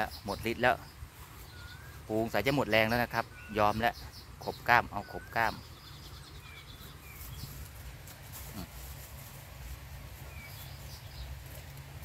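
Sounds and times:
faint bird chirps: 0:00.0 - 0:07.6.

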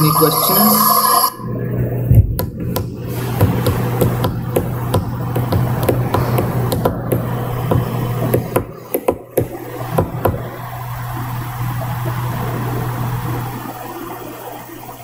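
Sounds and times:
steady low hum: 0:00.0 - 0:15.0
sharp taps: 0:02.3 - 0:10.4.

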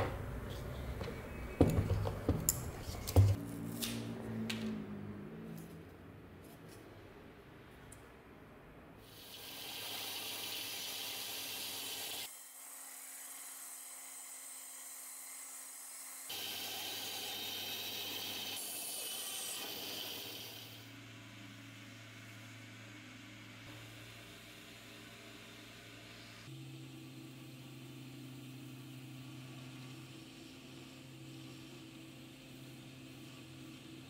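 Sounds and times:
band saw cutting wood: 0:09.2 - 0:20.9.

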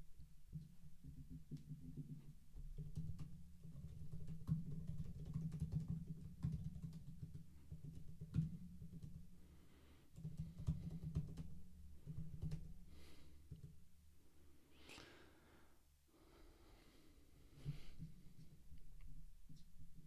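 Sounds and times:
typing on computer keyboard: 0:04.1 - 0:09.1, 0:10.2 - 0:11.4.

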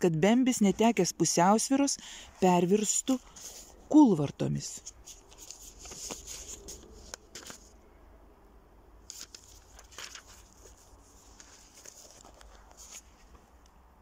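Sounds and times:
faint rustles and crackles: 0:02.3 - 0:07.8, 0:09.0 - 0:13.8.

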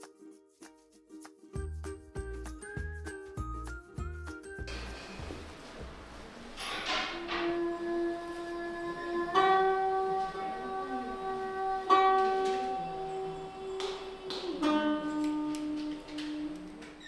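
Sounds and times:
plucked zither notes: 0:06.6 - 0:16.6.

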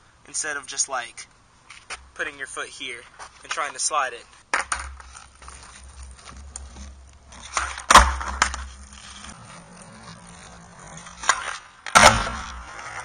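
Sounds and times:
skateboard rolling on concrete: 0:01.7 - 0:13.0
skateboard cracking against ground: 0:03.0 - 0:13.0.

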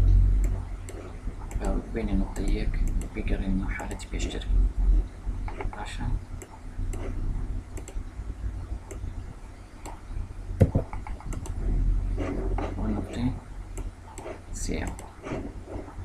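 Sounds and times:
low steady hum: 0:00.0 - 0:16.0
keyboard and mouse clicks: 0:00.4 - 0:03.2, 0:05.5 - 0:08.0, 0:08.8 - 0:09.1, 0:10.6 - 0:11.6, 0:12.2 - 0:15.9.

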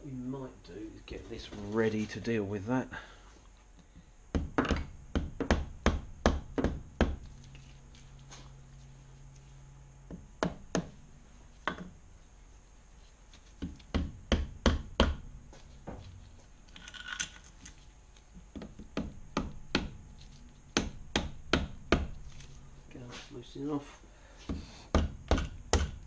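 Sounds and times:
metal parts scraping: 0:16.7 - 0:17.9.

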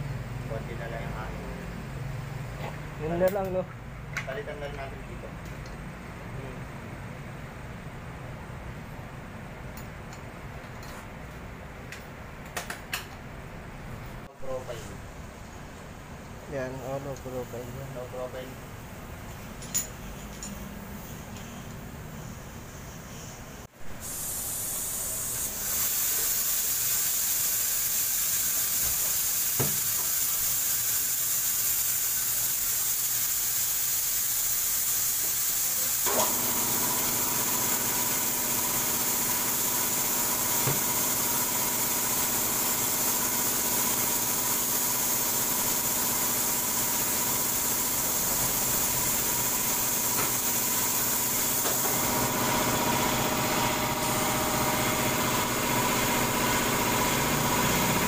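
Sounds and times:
rushing air hiss: 0:22.2 - 0:54.7.

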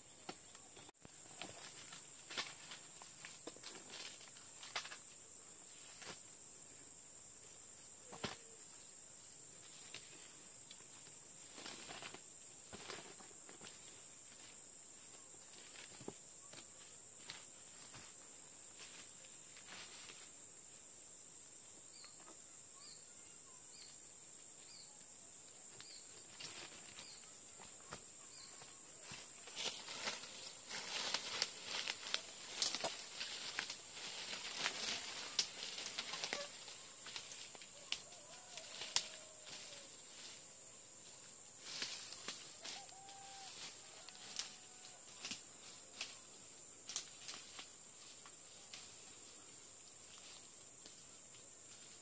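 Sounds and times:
steps on leaf litter: 0:28.5 - 0:39.9.

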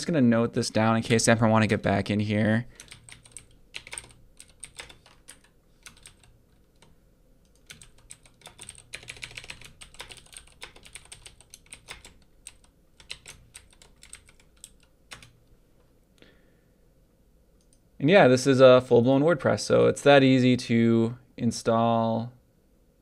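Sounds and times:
typing on a computer keyboard: 0:02.8 - 0:15.4.

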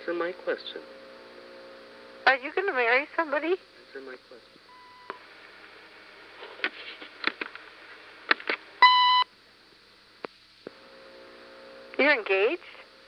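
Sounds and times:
short electronic beep: 0:04.7 - 0:05.2, 0:08.8 - 0:09.3
phone line hiss: 0:04.7 - 0:05.3, 0:08.8 - 0:09.3.

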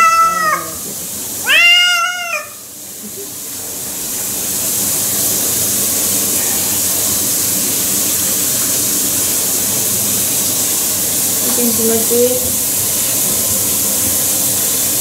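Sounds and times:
cat meowing: 0:00.0 - 0:00.8, 0:01.4 - 0:02.7
shower water spray hissing: 0:00.0 - 0:15.0.

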